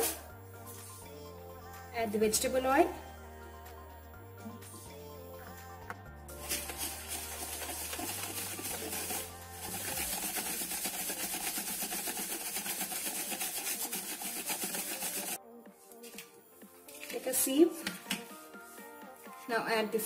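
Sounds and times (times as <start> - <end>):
whisk scraping in a bowl: 6.3 - 15.4.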